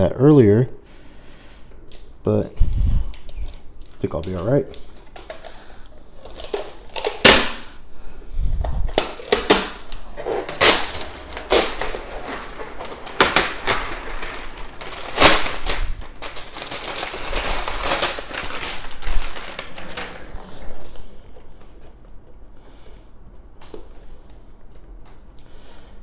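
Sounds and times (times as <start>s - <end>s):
plastic film peeling crackles: 3.1s - 7.6s, 8.8s - 20.6s.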